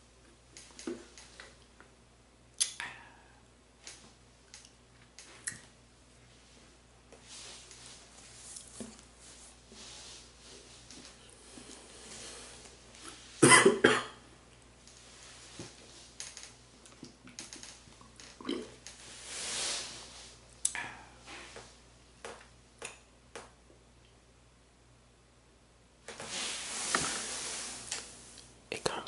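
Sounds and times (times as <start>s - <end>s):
short hiss: 26.2s - 28.4s.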